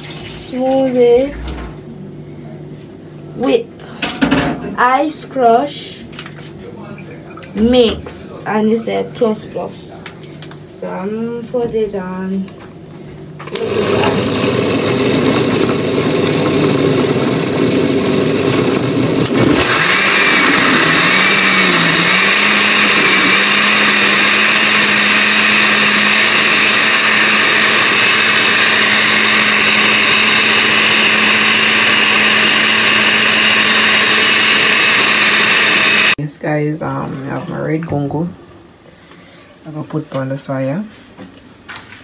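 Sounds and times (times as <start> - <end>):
blender motor whirring: 13.4 - 36.2.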